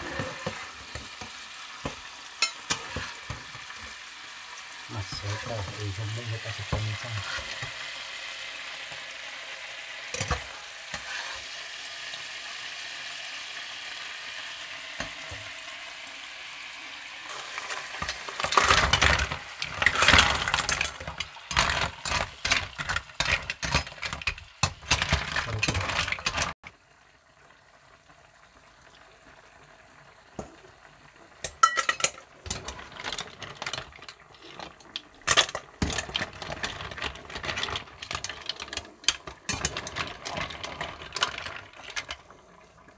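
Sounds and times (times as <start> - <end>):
sauce sizzling in a frying pan: 0.0 - 42.9
mussel shells clattering in pan: 0.2 - 4.0, 17.3 - 26.6, 31.4 - 42.3
metal spatula stirring: 2.4 - 3.6, 10.2 - 11.5.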